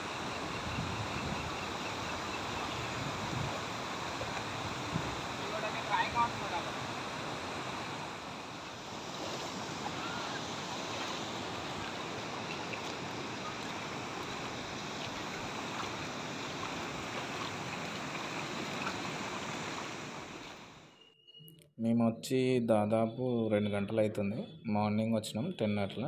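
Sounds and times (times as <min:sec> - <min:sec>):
river water rushing over dam: 0:01.7 - 0:20.8.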